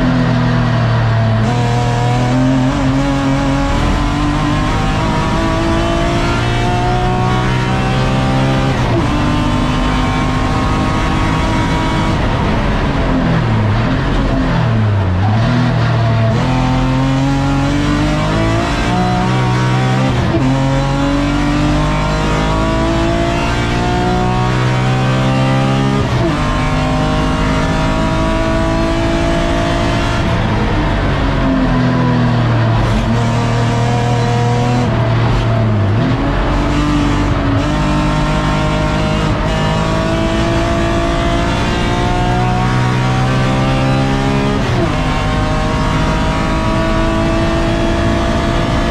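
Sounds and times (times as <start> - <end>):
race car engine accelerating: 0.0 - 48.9.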